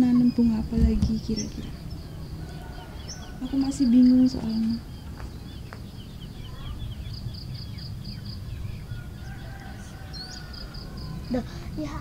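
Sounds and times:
birds chirping: 0.0s - 12.0s
low outdoor rumble: 0.0s - 12.0s
distant chicken call: 2.1s - 4.2s, 8.6s - 11.4s.

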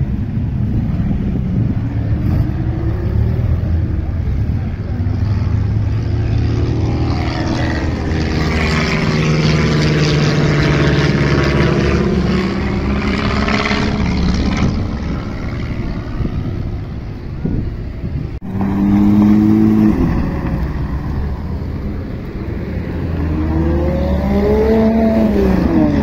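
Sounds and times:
biplane engine drone overhead: 0.0s - 26.0s
sports car engine passing: 0.0s - 26.0s.

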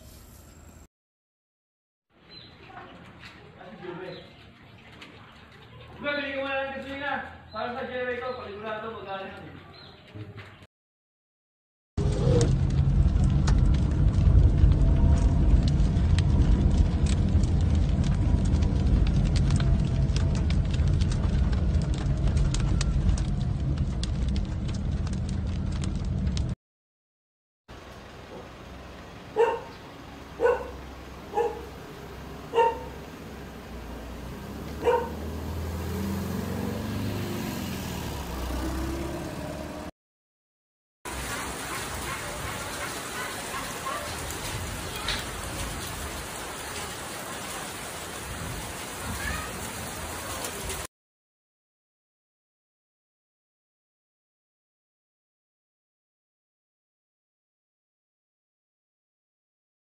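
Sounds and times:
car driving low rumble: 12.0s - 26.6s, 27.8s - 39.9s
dog barking: 29.3s - 29.8s, 30.4s - 31.8s, 32.5s - 33.0s, 34.8s - 35.2s, 41.2s - 44.3s.

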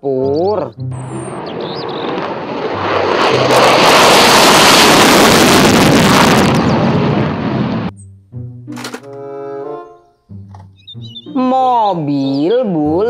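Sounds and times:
jet engine roaring on takeoff: 1.0s - 7.9s.

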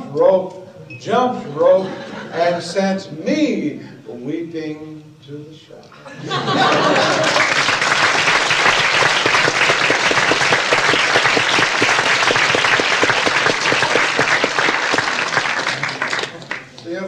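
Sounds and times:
audience applauding: 6.3s - 16.9s.

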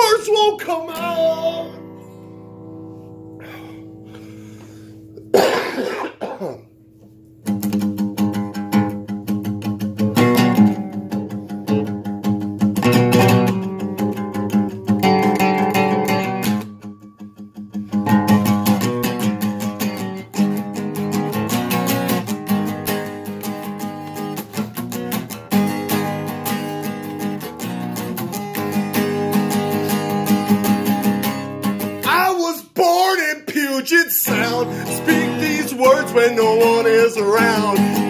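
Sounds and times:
acoustic guitar strumming: 0.0s - 38.0s
person coughing: 5.2s - 6.7s.

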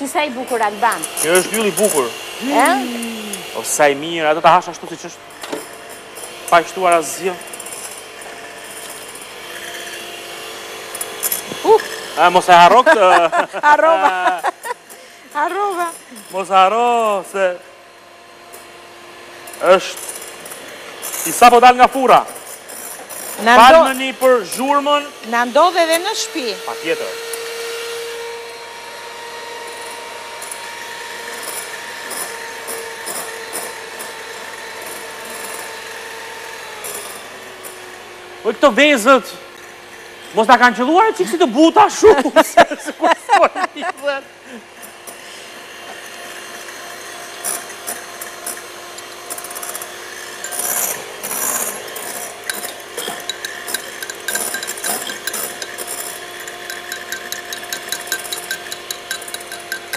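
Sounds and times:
electric hand mixer whining: 0.0s - 59.9s
beaters clicking and rattling in bowl: 0.4s - 3.5s, 5.3s - 17.5s, 19.4s - 25.0s, 31.3s - 36.1s, 36.7s - 37.8s, 45.9s - 59.9s.

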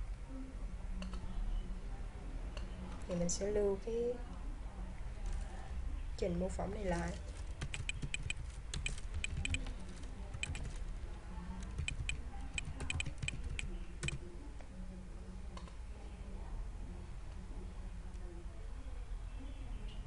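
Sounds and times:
low steady hum: 0.0s - 20.0s
computer keyboard typing: 7.3s - 11.0s, 11.6s - 14.2s.

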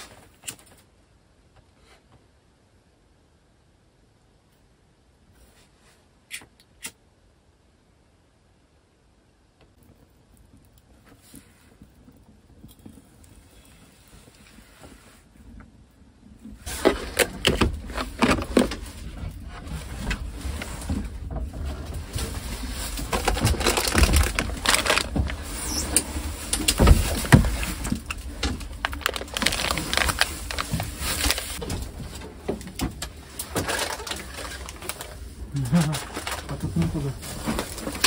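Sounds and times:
packages rustling: 16.6s - 38.0s.

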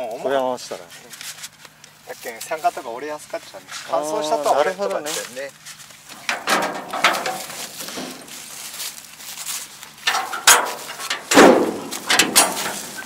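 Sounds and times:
straw rustling: 0.6s - 13.0s
metallic clinks and knocks: 10.0s - 13.0s
loud thump: 11.3s - 12.8s.

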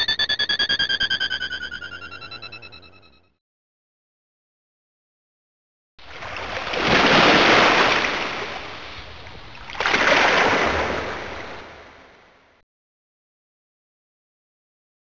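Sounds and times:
rushing surf-like ringtone: 0.0s - 3.3s.

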